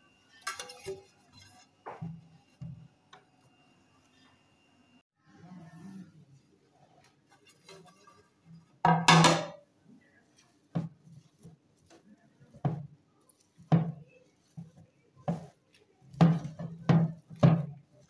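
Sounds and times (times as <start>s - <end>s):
dough punched and kneaded: 10.7s - 18.0s.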